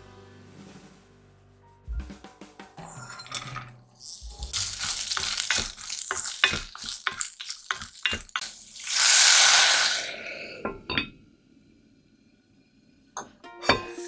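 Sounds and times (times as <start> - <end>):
carrots sizzling in oil: 4.0 - 10.4
water hissing on a hot pan: 4.1 - 11.0
wooden spatula scraping a pot: 4.3 - 8.9.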